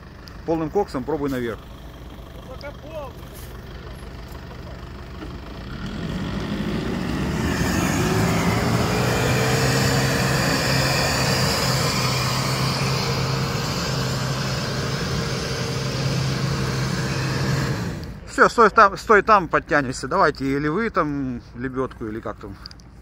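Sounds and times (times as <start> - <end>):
engine revving at high revs: 5.6 - 18.3.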